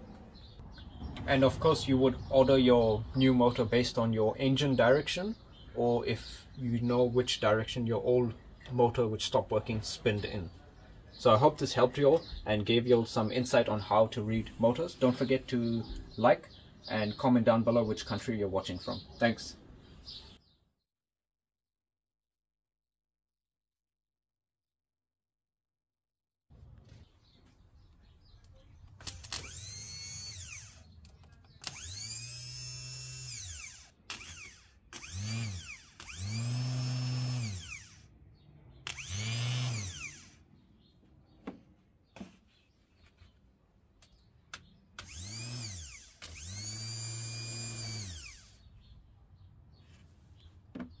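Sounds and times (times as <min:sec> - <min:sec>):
sharp electrical clicks: 0:28.9 - 0:36.4, 0:38.8 - 0:40.2
starter motor whining: 0:29.0 - 0:38.1, 0:38.8 - 0:40.4, 0:45.0 - 0:48.7.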